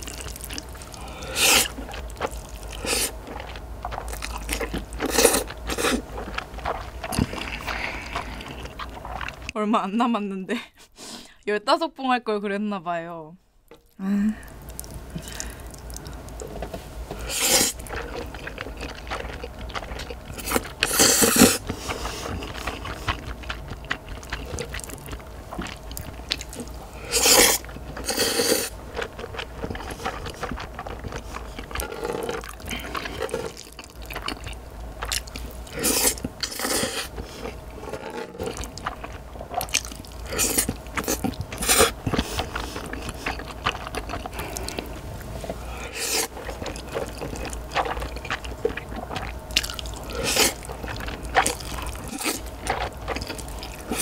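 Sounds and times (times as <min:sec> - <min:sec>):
quiet chewing: 0:00.0 - 0:09.6, 0:13.7 - 0:54.0
loud noodle slurps: 0:01.1 - 0:01.9, 0:02.8 - 0:03.2, 0:17.2 - 0:18.0, 0:20.4 - 0:23.1, 0:27.0 - 0:28.8, 0:35.7 - 0:38.2, 0:40.3 - 0:43.4, 0:45.9 - 0:47.9, 0:50.1 - 0:50.7.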